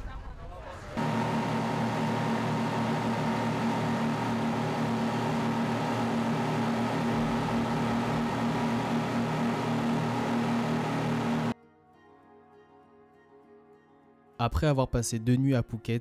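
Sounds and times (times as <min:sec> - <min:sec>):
boat engine humming: 0:01.0 - 0:11.6.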